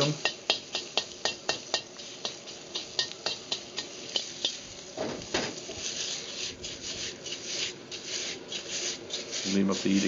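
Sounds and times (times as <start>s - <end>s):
chicken sizzling in wok: 0.0s - 10.0s
gas burner roaring: 0.0s - 10.0s
metal utensil clacking on wok: 0.2s - 4.6s.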